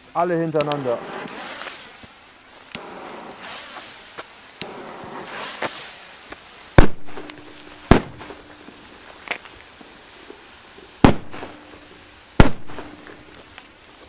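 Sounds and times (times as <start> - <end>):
firecrackers cracking: 0.0 - 14.0
firecracker bangs: 2.8 - 3.9, 4.6 - 6.0, 6.7 - 8.7, 11.0 - 13.5.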